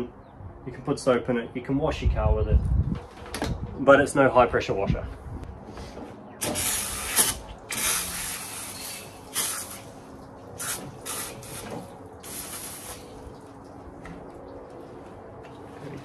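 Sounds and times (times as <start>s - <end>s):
hose nozzle spraying water: 6.4s - 14.2s.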